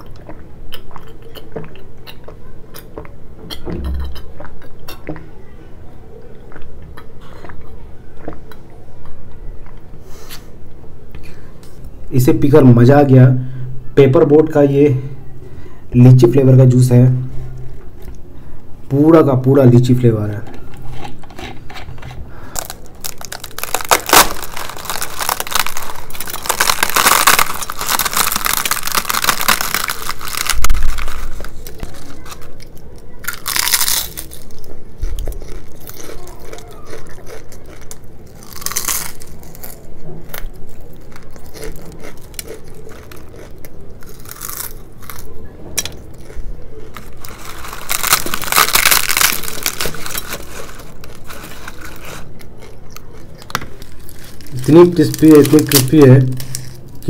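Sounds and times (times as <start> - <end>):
chewing and crunching: 0.0 - 5.3, 6.2 - 10.4, 22.5 - 57.0
fried bread tearing and crackling: 22.4 - 57.0.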